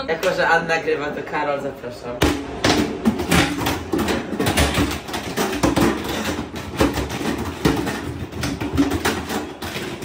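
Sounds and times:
knocks and thumps on rope obstacle: 2.2s - 10.0s.

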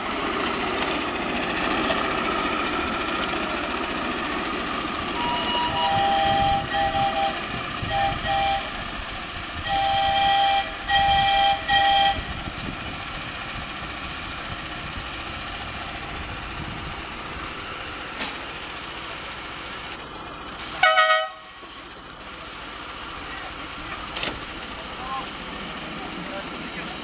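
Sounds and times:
train running: 0.0s - 27.0s
whistle blast: 0.1s - 1.2s, 5.2s - 8.7s, 9.7s - 12.3s, 20.7s - 22.0s
two-note locomotive horn: 5.2s - 8.8s, 9.6s - 12.4s, 20.8s - 21.9s.

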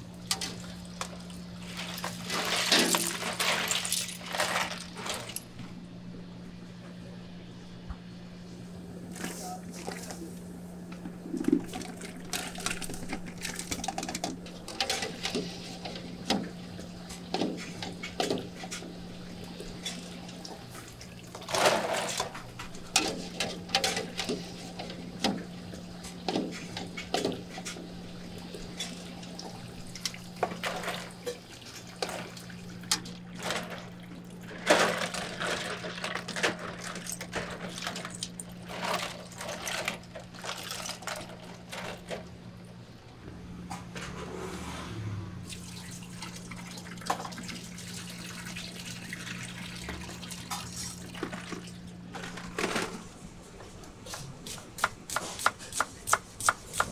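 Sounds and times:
water splashing and sloshing: 0.0s - 5.5s, 11.0s - 42.4s, 44.0s - 56.9s
steady low hum: 0.0s - 35.8s.

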